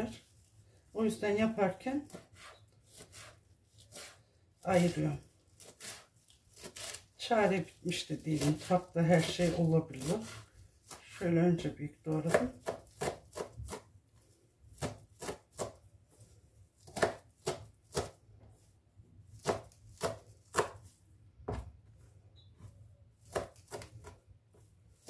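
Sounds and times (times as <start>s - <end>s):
knife chopping on cutting board: 2.0s - 4.2s, 10.0s - 11.1s, 12.2s - 13.9s, 14.7s - 15.8s, 16.8s - 18.2s, 19.3s - 21.7s, 22.6s - 25.0s.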